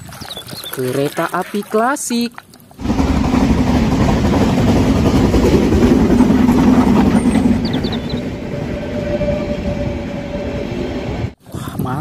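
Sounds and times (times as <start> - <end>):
train rumbling past on rails: 2.8 - 11.4.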